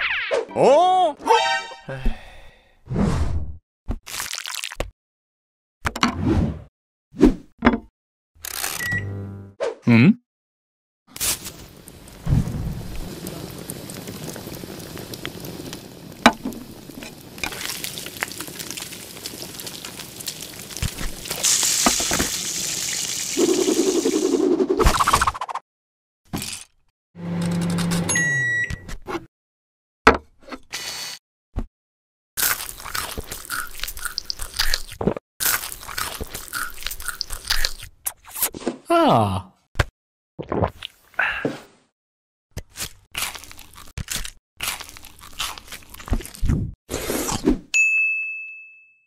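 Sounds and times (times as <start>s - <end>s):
crunching and chewing crisp food: 4.1s - 4.8s, 17.4s - 21.4s, 32.4s - 37.9s, 42.6s - 46.6s
food sizzling in hot oil: 11.1s - 24.3s.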